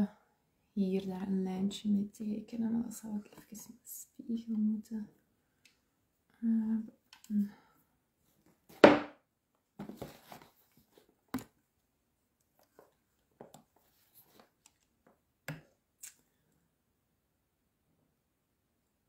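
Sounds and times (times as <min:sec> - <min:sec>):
handling rustles: 0:09.8 - 0:11.6.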